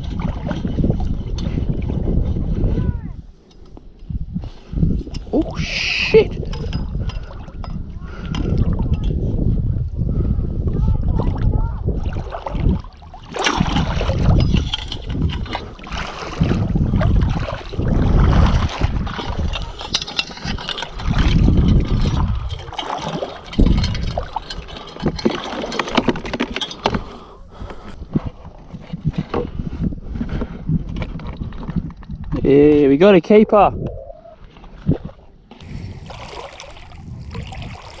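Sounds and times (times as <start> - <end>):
seawater sloshing and splashing: 0.0 - 2.6, 11.1 - 27.2, 34.4 - 38.0
wind rumbling on microphone: 0.0 - 38.0.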